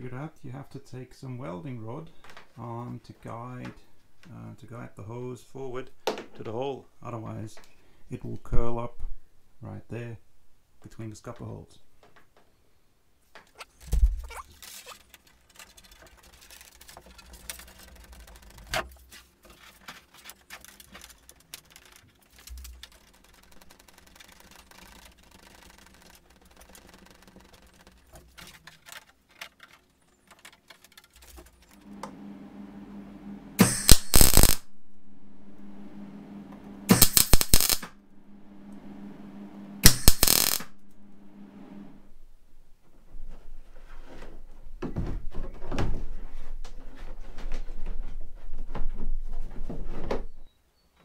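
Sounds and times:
plastic hose rustling and clicking: 0:13.3 - 0:31.8
arc welder humming: 0:31.6 - 0:42.1
arc welding crackling bursts: 0:33.6 - 0:34.7, 0:36.9 - 0:38.0, 0:39.8 - 0:40.9.

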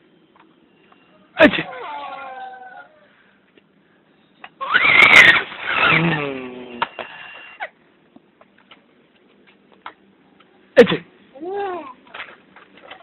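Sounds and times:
baby squealing: 0:01.6 - 0:02.9
baby saying ah: 0:11.4 - 0:12.0.

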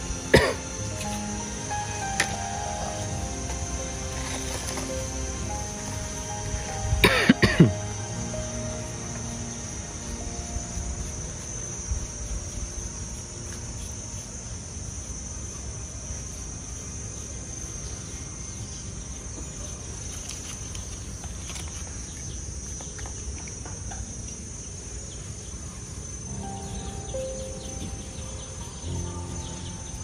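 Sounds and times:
insects chirring: 0:00.0 - 0:30.0.

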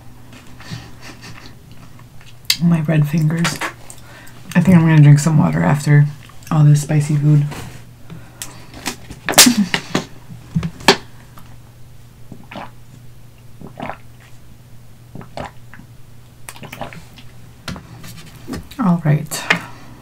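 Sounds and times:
person swallowing water: 0:12.3 - 0:14.4, 0:15.1 - 0:15.9, 0:16.5 - 0:17.3.

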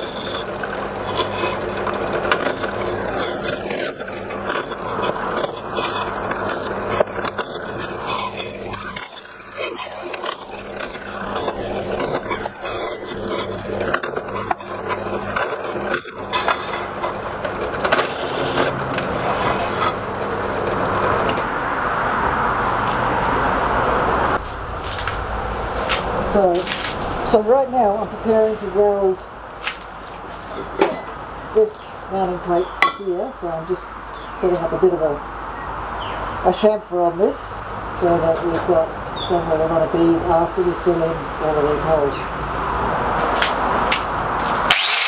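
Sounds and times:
bit scraping steel: 0:00.0 - 0:21.6, 0:38.0 - 0:45.0
drill press motor hum: 0:44.6 - 0:45.0.

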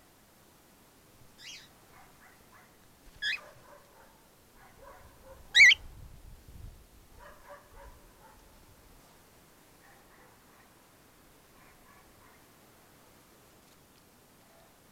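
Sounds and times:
cockatiels calling: 0:01.4 - 0:01.7, 0:03.2 - 0:03.4, 0:05.6 - 0:05.8
soft bird chirps: 0:01.4 - 0:01.7, 0:05.6 - 0:05.8.

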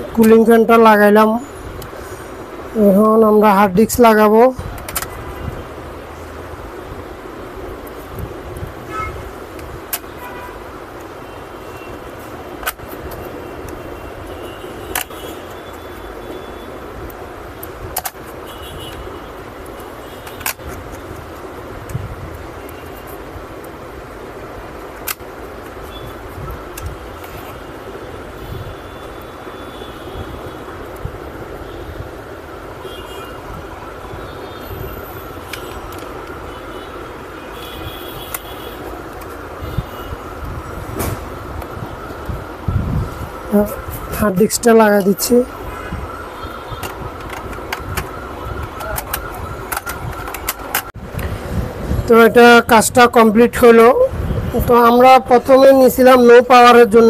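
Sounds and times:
laptop parts clicking: 0:04.7 - 0:05.3, 0:09.5 - 0:10.2, 0:12.0 - 0:13.9, 0:14.7 - 0:16.1, 0:17.0 - 0:23.8, 0:24.8 - 0:25.9, 0:26.6 - 0:27.6, 0:35.4 - 0:36.4, 0:38.2 - 0:39.4, 0:46.7 - 0:51.3.

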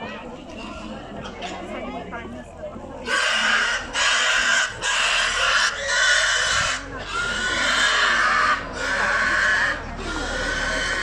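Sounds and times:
pig squealing: 0:03.0 - 0:11.0.

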